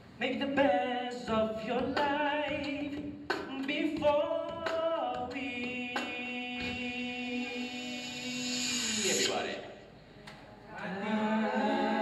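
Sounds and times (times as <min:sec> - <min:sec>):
men singing unaccompanied: 0:00.2 - 0:08.5, 0:10.8 - 0:12.0.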